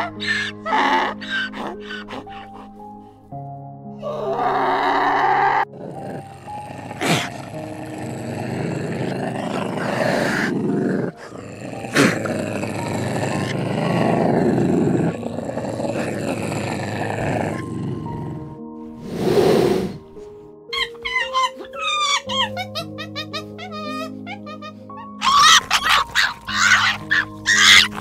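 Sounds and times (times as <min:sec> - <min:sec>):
big cat growling: 0:04.0 - 0:20.0, 0:25.2 - 0:28.0
donkey braying: 0:20.7 - 0:28.0.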